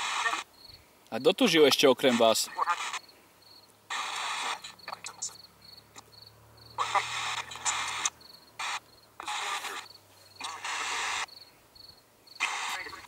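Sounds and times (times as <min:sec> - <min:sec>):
radio sweeping static bursts: 0:00.0 - 0:00.5, 0:01.2 - 0:03.1, 0:03.9 - 0:05.4, 0:06.8 - 0:11.3, 0:12.4 - 0:13.0
voice-like fragment: 0:06.8 - 0:08.1.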